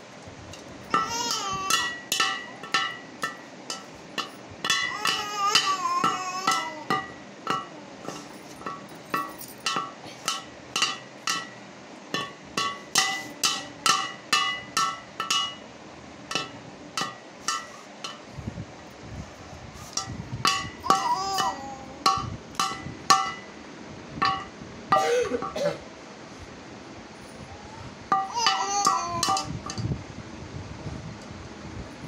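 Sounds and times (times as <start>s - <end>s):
sticks clanging on metal bowl: 0.5s - 15.7s, 16.3s - 18.3s, 19.8s - 23.5s, 24.2s - 25.6s, 28.1s - 29.9s.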